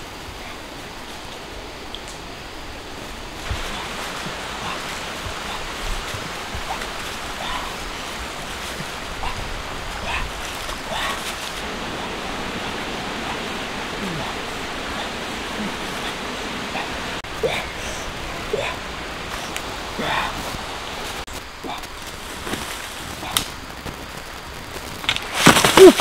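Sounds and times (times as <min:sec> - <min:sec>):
flowing water rushing: 0:00.0 - 0:23.8
faint short calls: 0:25.4 - 0:26.0.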